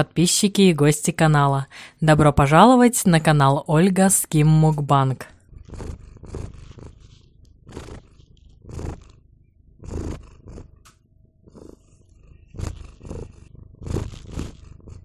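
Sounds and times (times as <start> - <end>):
cat purring: 4.8 - 15.0.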